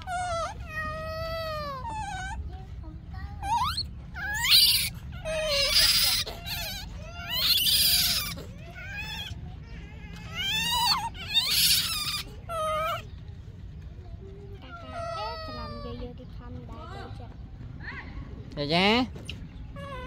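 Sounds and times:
baby monkey screaming: 0.0 - 2.6, 3.2 - 13.1, 14.6 - 16.1, 19.2 - 20.0.

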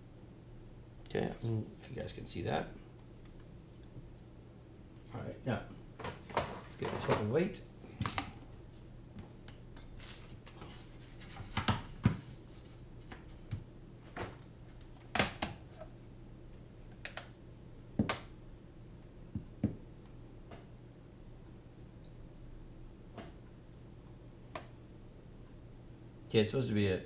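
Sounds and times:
faint steady low hum: 0.0 - 27.0.

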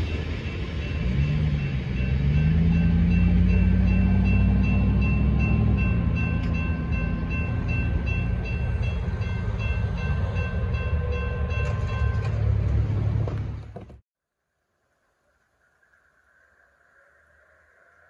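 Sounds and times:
railroad crossing bells ringing: 0.0 - 13.2.

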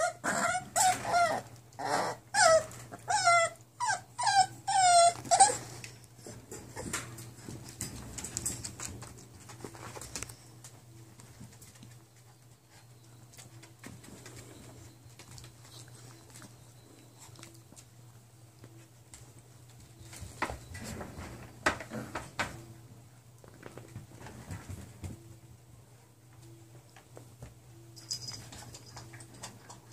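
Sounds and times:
puppies moving on blankets: 4.3 - 22.6, 23.3 - 25.4.

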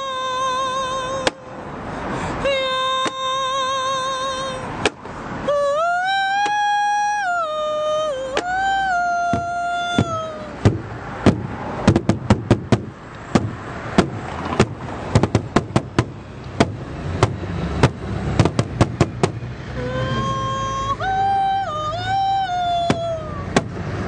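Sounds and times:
man singing sliding note: 19.8 - 23.4.

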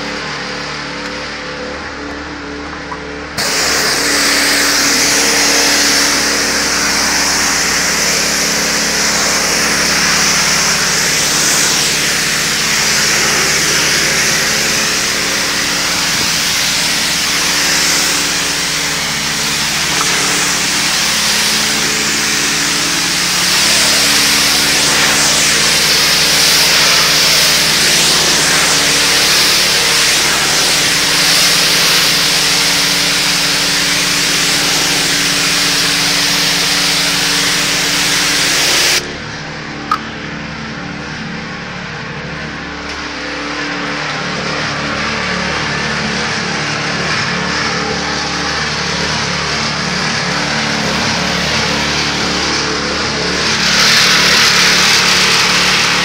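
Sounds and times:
pressure washer engine running: 0.0 - 56.0
water jet hissing on concrete: 3.4 - 39.1, 47.4 - 56.0.

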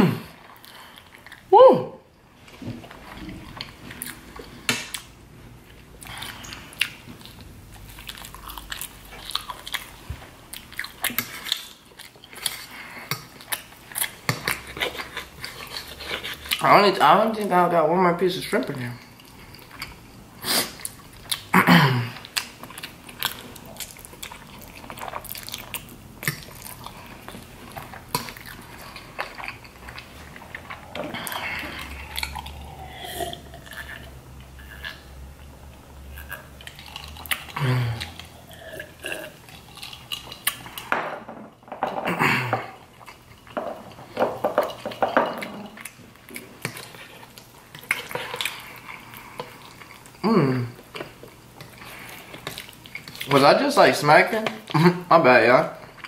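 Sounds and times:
chewing and lip smacking: 2.8 - 16.7, 19.1 - 21.5, 22.2 - 40.9, 44.6 - 50.2, 50.8 - 53.4.

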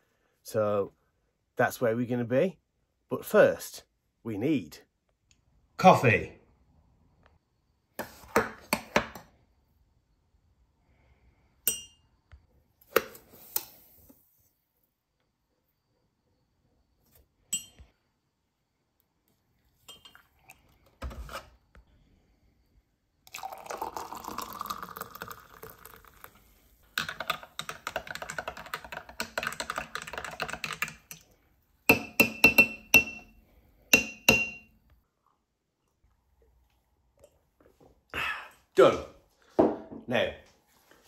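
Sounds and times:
hot water pouring into glass mug: 23.3 - 26.6
teaspoon clinking against glass: 31.9 - 33.3, 33.9 - 34.7.

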